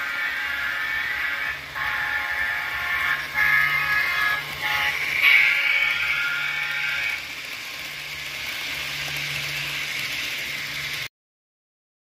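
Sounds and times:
model train horn: 0:00.0 - 0:08.0
model train running hiss: 0:00.0 - 0:11.1.

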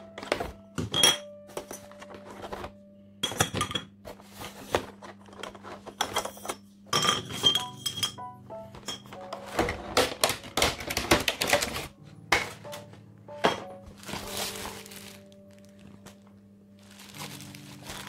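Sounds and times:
plastic wrap crackling: 0:09.5 - 0:11.9, 0:13.8 - 0:18.0.

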